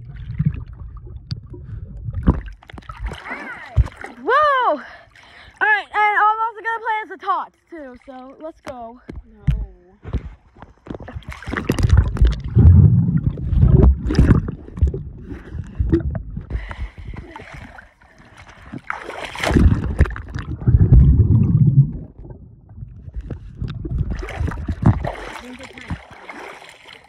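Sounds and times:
muffled underwater rumbling and bubbling: 0:00.0 - 0:04.3, 0:09.0 - 0:26.2
pool water splashing and gurgling: 0:00.0 - 0:09.0, 0:10.8 - 0:27.0.

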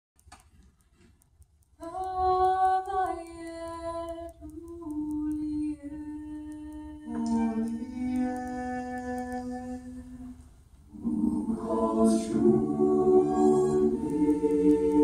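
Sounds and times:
lower voice singing: 0:01.8 - 0:15.0
voices singing held notes: 0:01.8 - 0:15.0.

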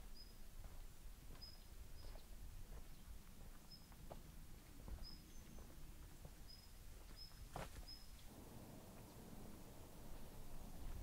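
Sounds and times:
bird chirping: 0:00.1 - 0:00.4, 0:01.4 - 0:04.0, 0:05.0 - 0:05.8, 0:06.4 - 0:10.8
soft footsteps: 0:00.6 - 0:08.3.

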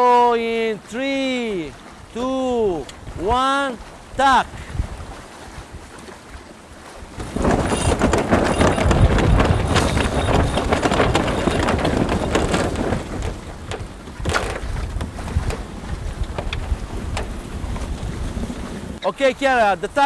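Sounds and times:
wind and sea rushing: 0:00.0 - 0:20.0
winch rapid clicking: 0:07.2 - 0:15.1.

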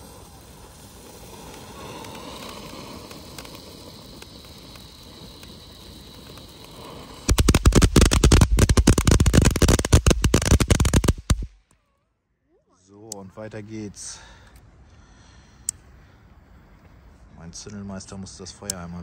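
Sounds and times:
firework fountain hissing: 0:00.0 - 0:11.6
firework rapid crackling: 0:00.0 - 0:11.6.

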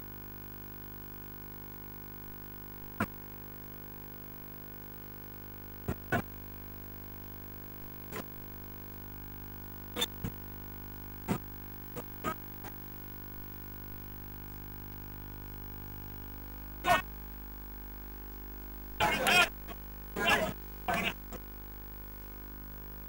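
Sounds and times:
electrical hum: 0:05.4 - 0:06.4, 0:07.3 - 0:23.0.

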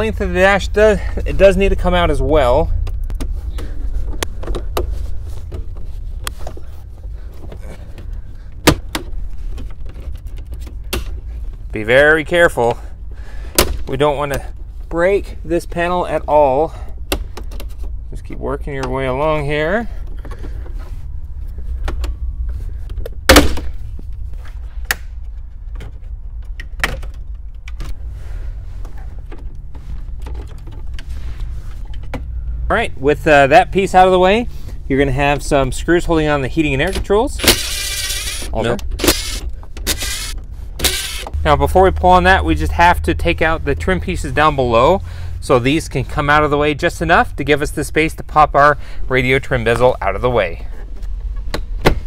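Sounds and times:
low steady hum: 0:00.0 - 0:52.0
steady low rumble: 0:00.0 - 0:52.0.

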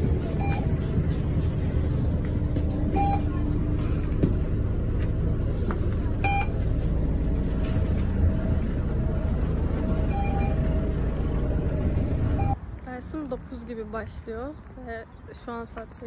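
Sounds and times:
bus engine rumble: 0:00.0 - 0:16.0
fare card validator beep: 0:02.9 - 0:03.3, 0:06.2 - 0:06.6, 0:10.1 - 0:10.6.

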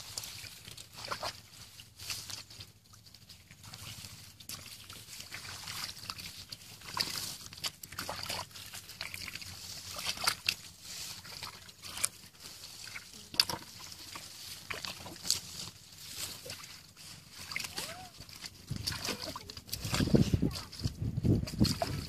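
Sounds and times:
hands splashing in muddy water: 0:00.0 - 0:22.0.

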